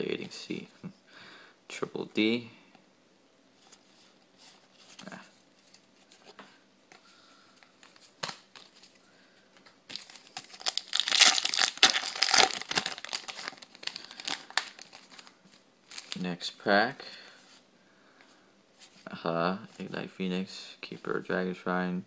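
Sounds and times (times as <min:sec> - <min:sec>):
cards being handled: 0:07.6 - 0:09.0, 0:09.6 - 0:16.2
foil wrapper crinkling and tearing: 0:09.9 - 0:16.2.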